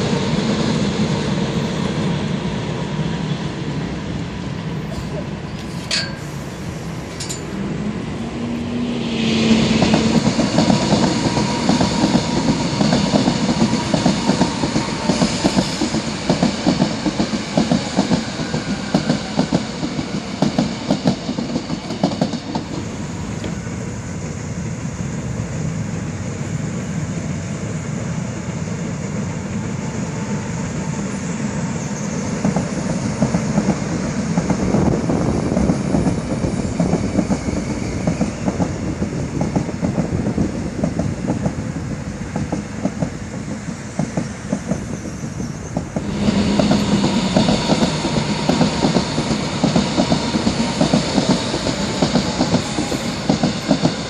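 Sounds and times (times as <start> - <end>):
electric train whine: 0.0 - 54.0
train running rumble: 0.0 - 54.0
train wheels clacking over rail joints: 7.1 - 7.6, 9.7 - 23.7, 32.4 - 41.6, 42.3 - 54.0.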